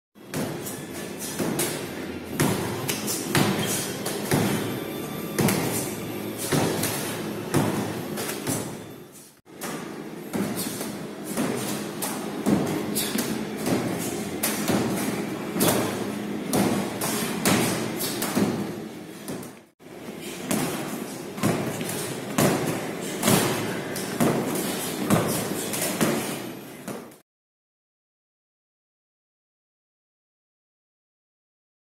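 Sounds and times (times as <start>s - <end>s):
medicine balls thumping: 1.4s - 8.9s, 9.6s - 19.5s.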